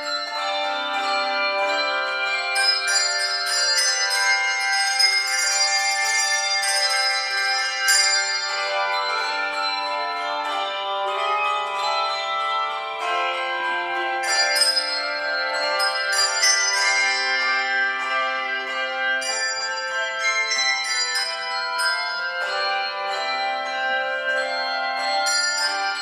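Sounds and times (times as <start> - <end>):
handbell choir playing: 0.0 - 26.0.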